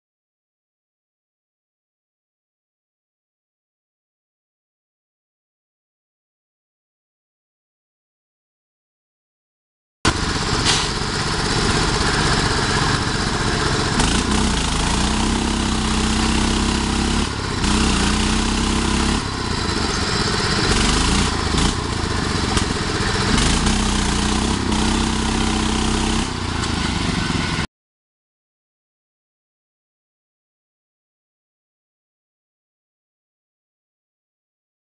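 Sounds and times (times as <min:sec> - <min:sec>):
lawn tractor engines under load: 0:10.1 - 0:27.7.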